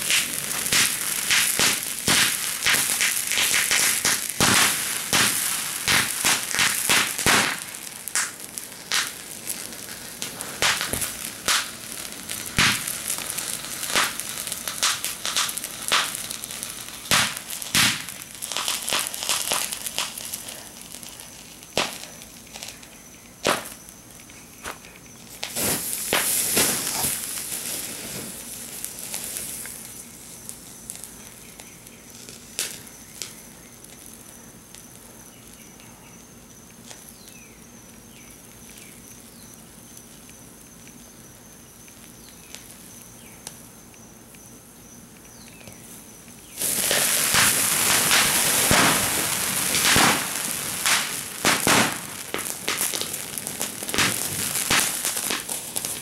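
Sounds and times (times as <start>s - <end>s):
sharp firework pops: 0.0s - 34.1s, 46.4s - 56.0s
fireworks fountain hissing crackle: 0.0s - 56.0s.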